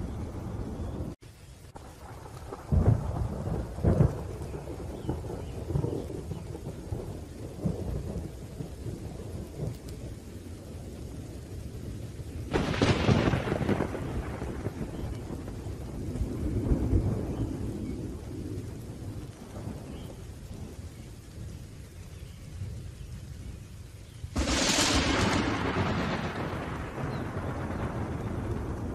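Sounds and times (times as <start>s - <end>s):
rolling thunder: 0.0s - 1.2s, 1.8s - 23.6s, 24.2s - 28.9s
steady rain: 0.0s - 28.9s.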